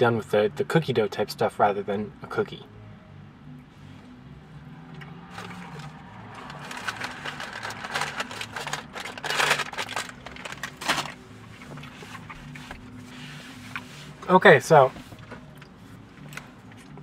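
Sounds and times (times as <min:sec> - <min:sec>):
fast-food packaging crinkling: 0:05.3 - 0:11.2.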